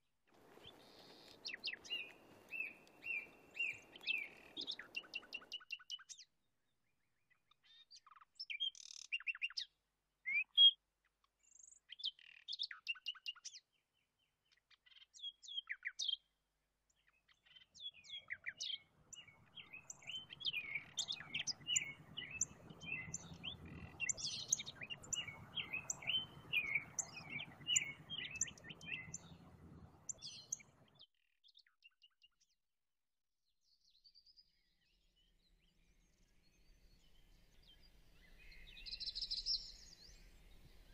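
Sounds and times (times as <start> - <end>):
birds chirping: 0.4 - 6.2, 17.4 - 31.0, 36.8 - 40.9
low steady noise: 19.4 - 30.8.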